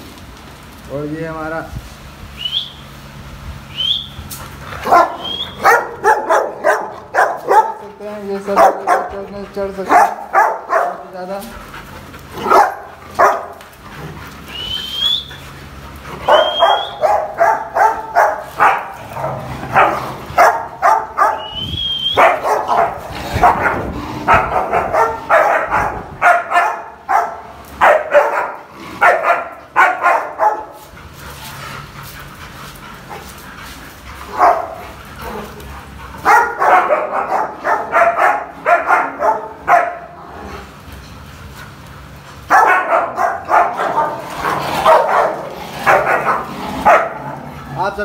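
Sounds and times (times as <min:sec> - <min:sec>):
dogs barking: 0:04.4 - 0:48.0
dog whining: 0:04.8 - 0:07.6, 0:16.1 - 0:18.2.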